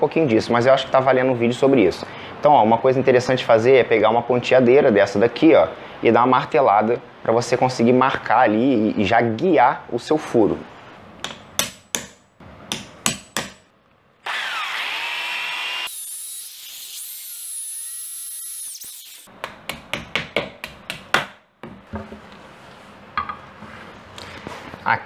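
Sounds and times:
hammer tapping on punch: 11.2s - 13.6s
electric drill boring into wall: 14.2s - 19.3s.

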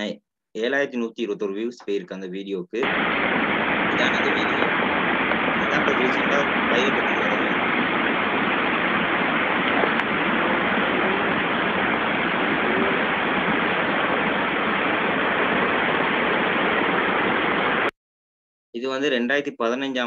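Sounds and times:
muffled floodwater rushing: 2.8s - 17.9s.

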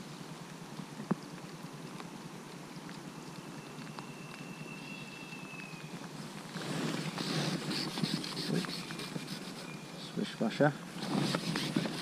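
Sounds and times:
light rain patter: 0.0s - 12.0s
thin high whistle: 3.5s - 5.9s, 7.8s - 10.2s.

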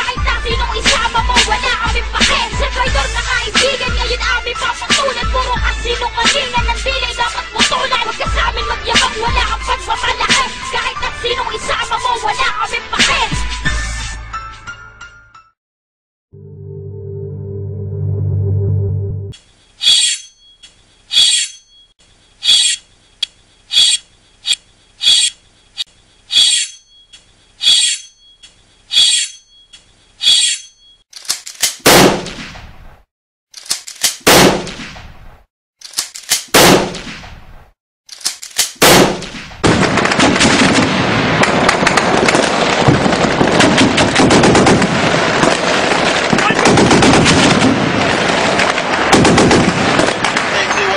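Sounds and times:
heavy gunshots with echo: 31.8s - 32.4s, 34.2s - 34.8s, 36.5s - 37.1s, 38.8s - 50.7s
rapid machine-gun fire: 34.3s - 34.8s, 38.8s - 50.5s.

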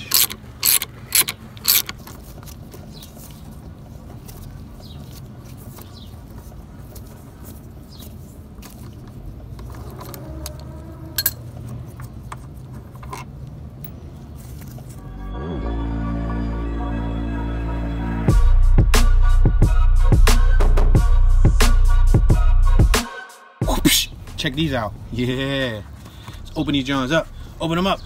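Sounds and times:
socket ratchet clicking: 0.0s - 2.0s
metal clicks: 0.0s - 2.2s.

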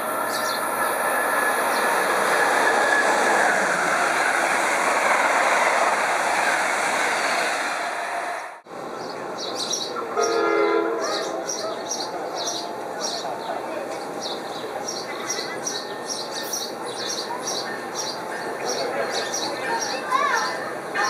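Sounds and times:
train passing at speed: 0.0s - 21.0s
train horn: 10.1s - 11.6s.

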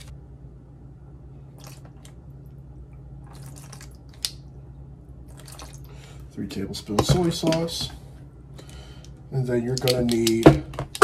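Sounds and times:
steady low hum: 0.0s - 11.0s
liquid dripping and splashing: 1.5s - 4.6s, 5.2s - 6.2s.

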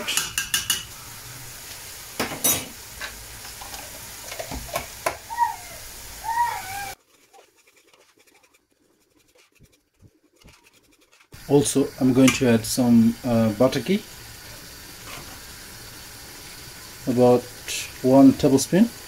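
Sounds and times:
sauce simmering and sizzling: 0.8s - 2.2s, 2.8s - 7.2s, 11.3s - 19.0s
wavering voice-like cries: 5.1s - 7.0s.

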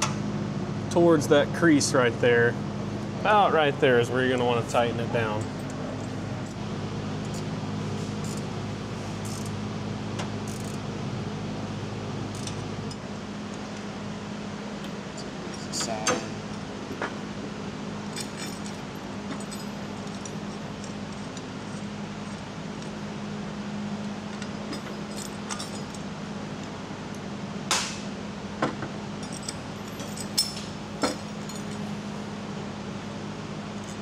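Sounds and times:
metal parts clinking on workbench: 29.2s - 31.9s.

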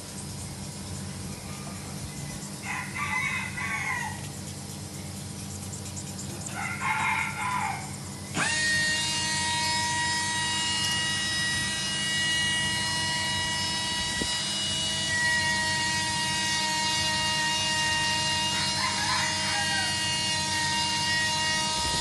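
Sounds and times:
small electric motor whine: 0.0s - 22.0s
rooster crowing: 2.6s - 4.4s, 6.5s - 8.0s, 18.2s - 22.0s.

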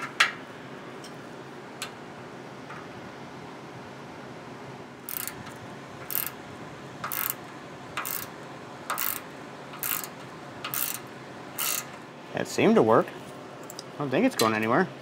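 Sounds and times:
hand ratchet clicking: 5.1s - 5.4s, 6.1s - 6.4s, 7.0s - 7.4s, 8.0s - 8.3s, 8.9s - 9.2s, 9.8s - 11.0s, 11.6s - 11.9s.

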